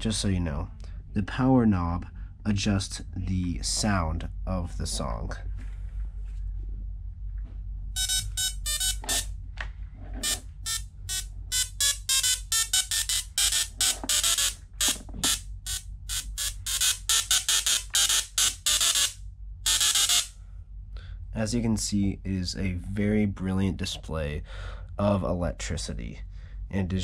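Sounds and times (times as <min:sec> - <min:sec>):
tesla coil playing buzzy notes: 0:08.0 - 0:09.3, 0:10.2 - 0:20.3.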